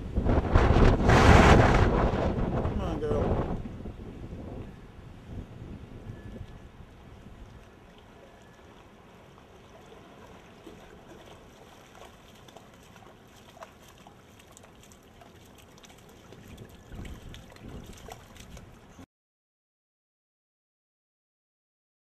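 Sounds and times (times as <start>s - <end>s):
dog splashing through water: 7.5s - 19.0s.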